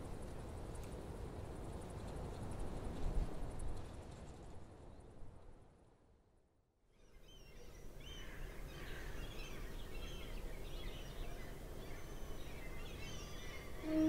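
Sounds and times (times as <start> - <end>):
small birds chirping: 7.0 - 14.0.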